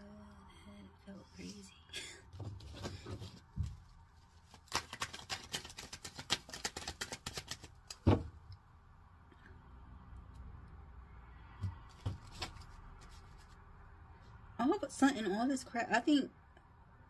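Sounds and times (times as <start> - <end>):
cards being shuffled: 2.5 - 8.2, 11.8 - 13.6.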